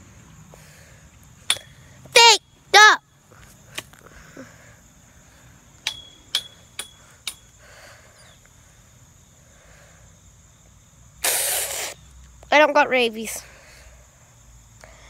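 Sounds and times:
metal fence rail taps ringing: 5.8s - 7.4s.

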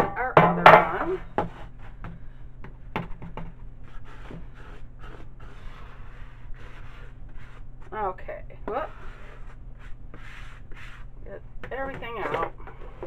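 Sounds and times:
soft scraping and rubbing: 3.8s - 13.0s.

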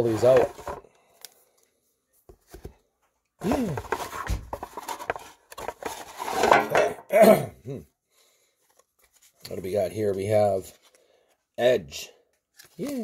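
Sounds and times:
cards rustling and clattering: 0.0s - 2.8s, 3.4s - 6.9s, 8.6s - 11.0s, 12.3s - 13.0s.

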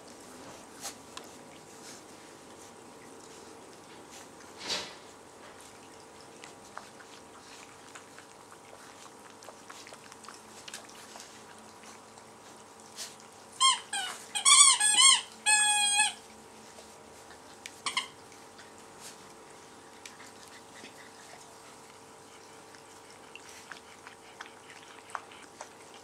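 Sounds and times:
puppies squealing and whining: 13.6s - 16.2s, 17.8s - 18.2s.

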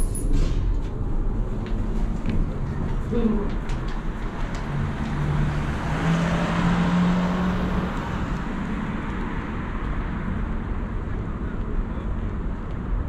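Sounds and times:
traffic noise: 0.0s - 13.0s.

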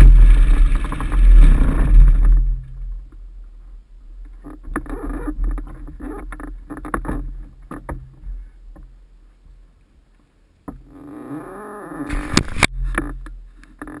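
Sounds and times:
rubbing and scraping on camera: 12.0s - 14.0s.

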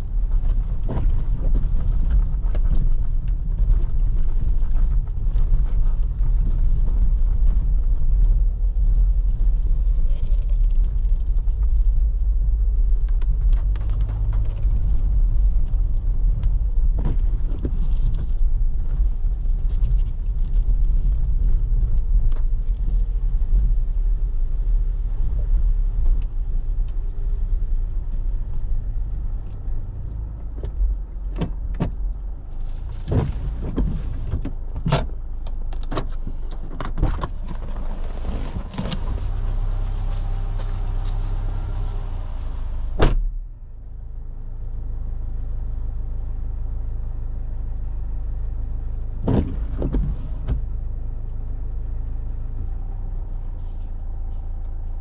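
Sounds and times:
engine and tyres rumbling: 0.0s - 55.0s.

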